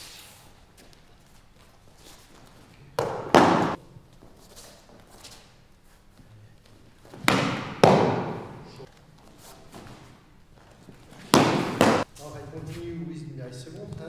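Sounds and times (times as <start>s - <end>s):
body slapping a mat: 3.0s - 3.8s, 7.1s - 8.6s, 11.1s - 12.1s.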